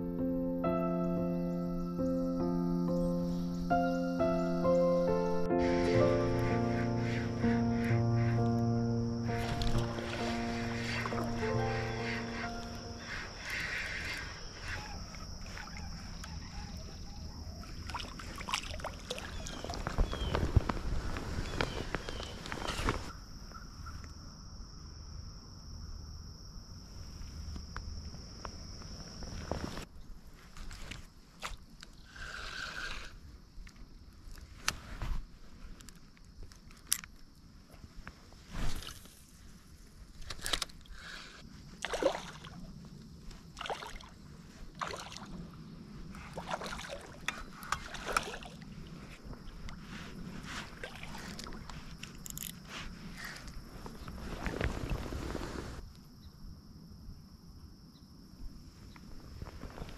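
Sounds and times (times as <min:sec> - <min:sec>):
insect trill: 0:00.0 - 0:59.9
river water splashing: 0:09.2 - 0:16.2, 0:17.6 - 0:20.0, 0:41.7 - 0:42.8, 0:43.4 - 0:52.5
low water murmur: 0:41.8 - 0:51.8.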